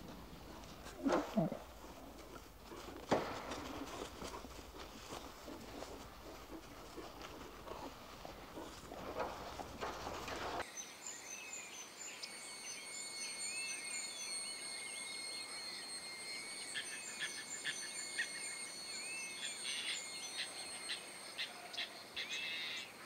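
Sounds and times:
bird calls: 0.0s - 10.6s, 12.2s - 23.0s
rustling noise: 0.0s - 10.6s
insects trilling: 0.0s - 23.0s.

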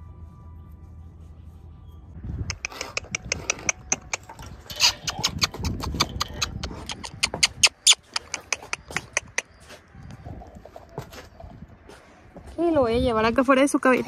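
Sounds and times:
horse hooves clopping on concrete: 2.5s - 12.8s.

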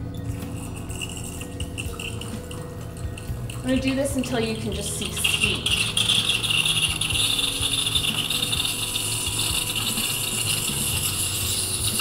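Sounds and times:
steam wand hissing: 4.7s - 12.0s.

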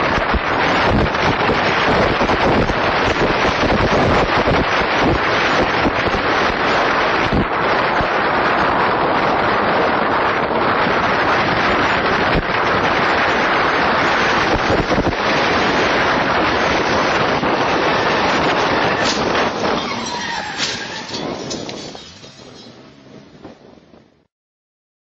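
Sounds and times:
car road and engine noise: 0.0s - 24.3s
wind buffeting microphone: 0.0s - 24.3s.

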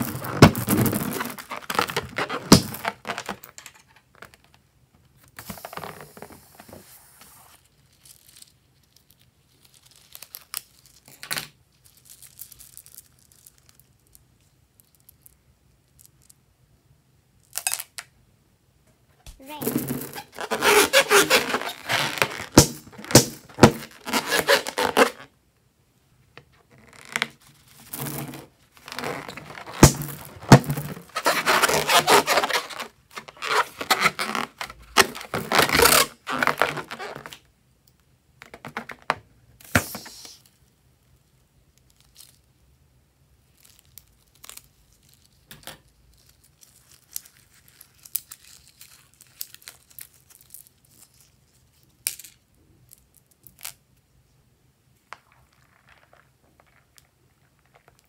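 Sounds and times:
hands rubbing rubber balloon: 20.1s - 25.2s, 26.8s - 37.2s.

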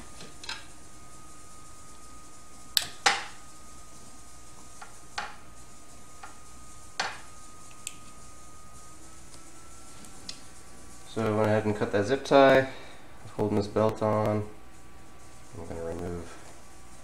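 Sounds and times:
faint steady high tone: 8.5s - 10.4s.

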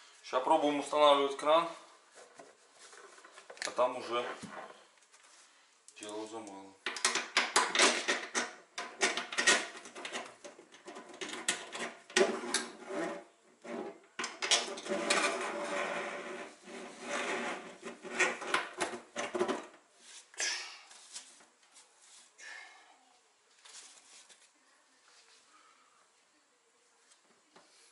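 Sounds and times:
rustling and scraping: 1.5s - 5.7s, 8.0s - 22.4s, 23.5s - 25.7s.

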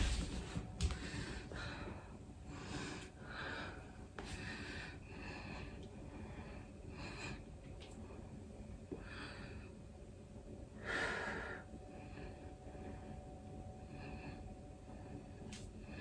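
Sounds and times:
man breathing heavily: 0.8s - 7.5s.

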